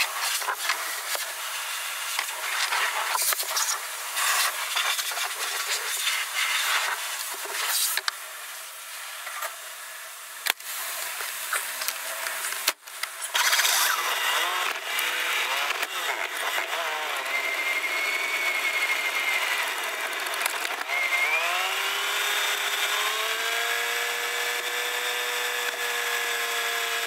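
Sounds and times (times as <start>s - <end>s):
high-pressure water spray hissing: 0.0s - 9.1s, 13.2s - 14.0s.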